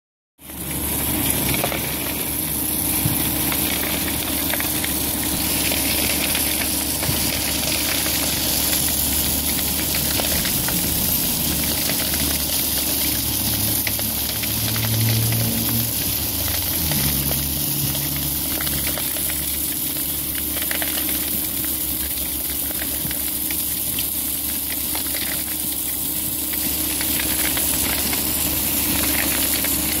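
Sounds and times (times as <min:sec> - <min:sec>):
gravel rushing off conveyor: 0:00.4 - 0:30.0
truck engine running: 0:00.6 - 0:20.7.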